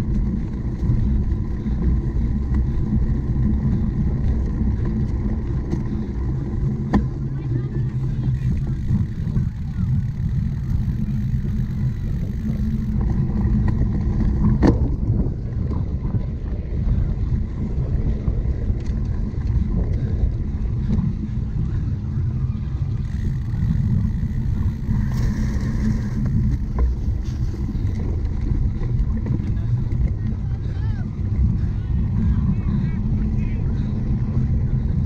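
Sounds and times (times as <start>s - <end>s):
bike rumbling over rough ground: 0.0s - 35.0s
wind on microphone: 0.0s - 35.0s.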